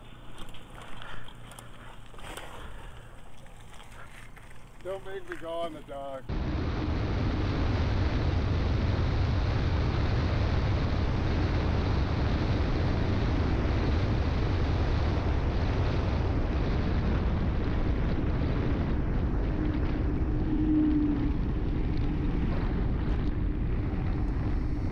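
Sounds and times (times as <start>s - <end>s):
wind buffeting microphone: 6.3s - 24.9s.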